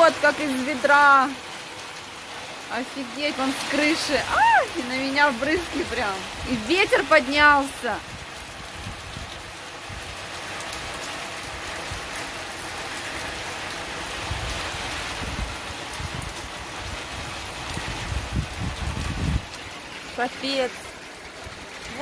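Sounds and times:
heavy rain pouring: 0.0 - 22.0
water running off roof: 0.0 - 22.0
wind buffeting microphone: 5.8 - 10.2, 14.2 - 19.6.

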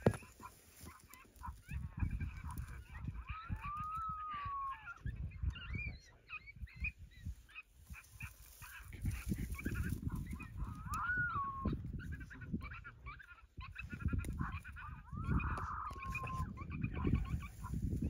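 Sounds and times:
coyote yips: 0.0 - 17.8
wind rumble on microphone: 0.0 - 18.0
coyote howl: 1.4 - 6.9, 9.7 - 17.7.

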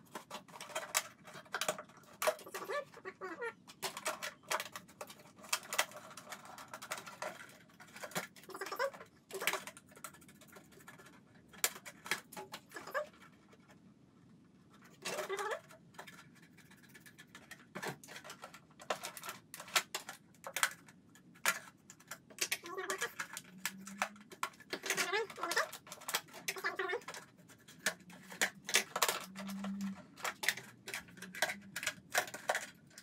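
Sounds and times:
plastic creaking as it bends: 0.0 - 13.8, 14.7 - 33.0
knife cutting plastic: 21.4 - 33.0.

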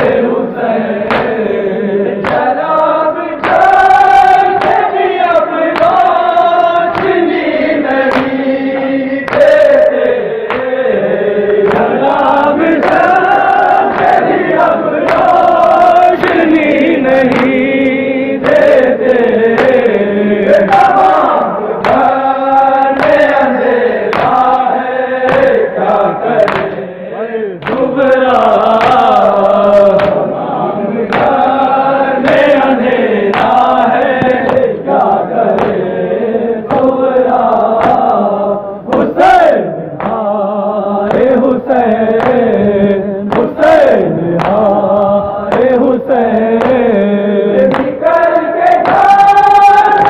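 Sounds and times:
lead reciter chanting: 0.0 - 50.0
men chanting in unison: 0.0 - 50.0
hands slapping chests: 1.0 - 26.9, 27.6 - 30.4, 31.0 - 35.9, 36.6 - 40.3, 41.0 - 50.0.

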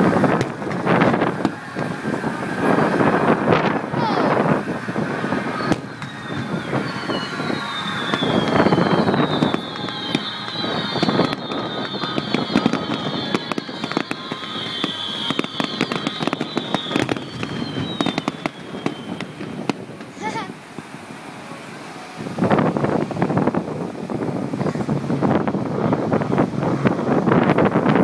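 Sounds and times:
fireworks crackling and banging: 0.0 - 28.0
falling firework whistles: 0.2 - 21.0.

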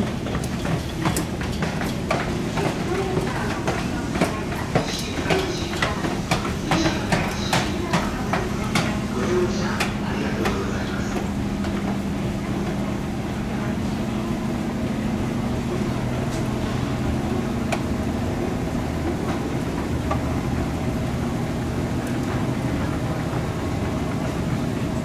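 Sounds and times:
escalator mechanical drone: 0.0 - 25.0.

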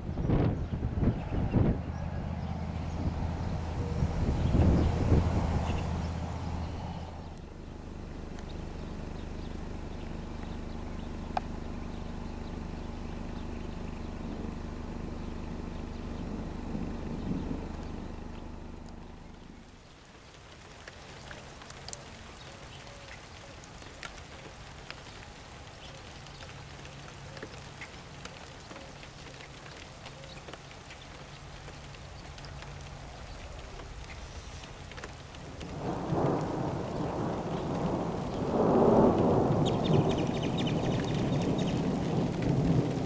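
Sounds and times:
thunder rumbling: 0.0 - 7.4, 16.2 - 19.8, 34.7 - 43.0
steady rain falling: 0.0 - 43.0.

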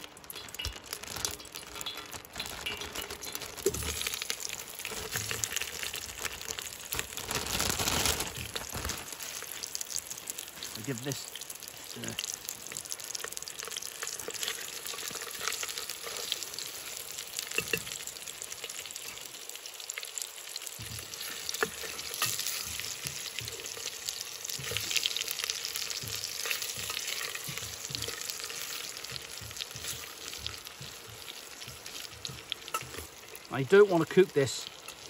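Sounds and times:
beef sizzling in oil: 0.0 - 35.0.

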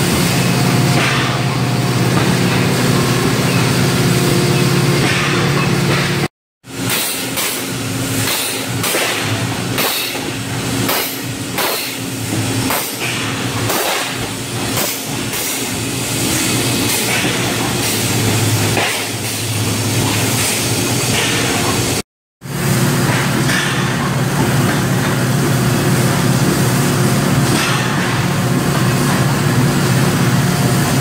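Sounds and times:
machinery knocks and clanks: 0.0 - 15.8, 16.5 - 22.0, 23.0 - 25.3
machinery low hum: 0.0 - 31.0.

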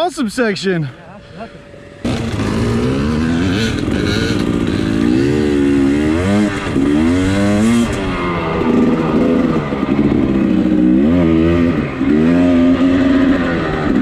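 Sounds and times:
dirt bike engine revving: 1.5 - 14.0.

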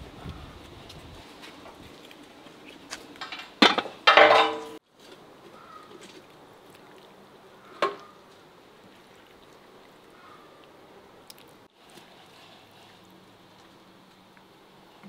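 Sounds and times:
metal cookware clanking on pot: 3.2 - 4.8.

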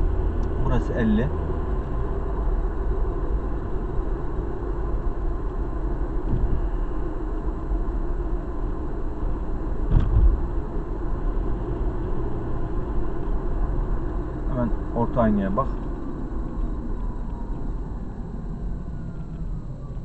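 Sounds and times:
tyre and engine rumble: 0.0 - 20.0
short thump: 9.9 - 10.4.

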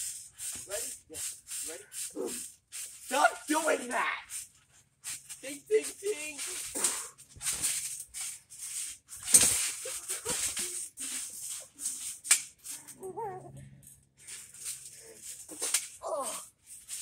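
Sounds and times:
trampoline springs rattling: 6.5 - 17.0.

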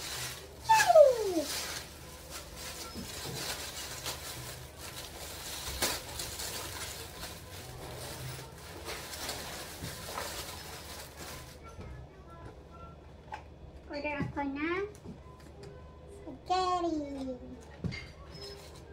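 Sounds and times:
plastic bags rustling and crinkling: 0.0 - 11.7.

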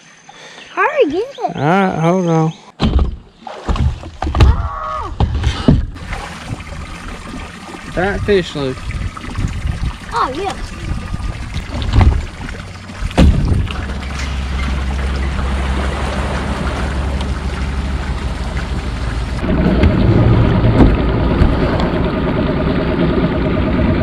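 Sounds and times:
thumps on boat deck: 2.8 - 4.6, 5.2 - 6.0, 11.7 - 12.4, 13.0 - 13.8, 20.7 - 21.7
engine idling: 12.2 - 24.0.

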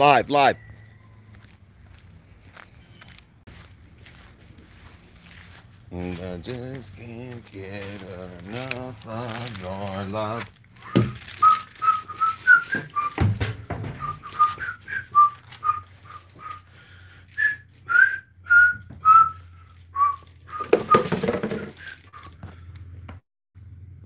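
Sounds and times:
man whistling a tune: 10.8 - 13.3, 14.0 - 16.7, 17.3 - 22.4.

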